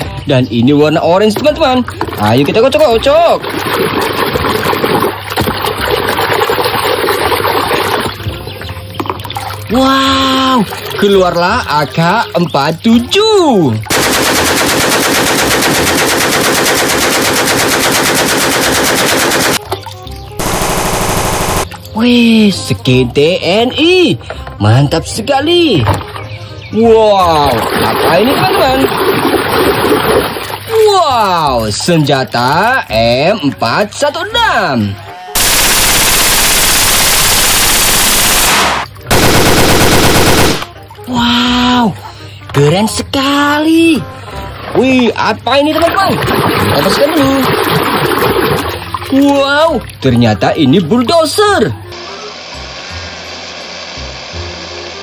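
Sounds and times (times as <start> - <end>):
rifle firing rapid shots: 13.9 - 19.6, 20.4 - 21.7, 35.4 - 40.7
toy rifle electronic gunfire: 13.9 - 19.6, 20.4 - 21.7, 35.4 - 40.7.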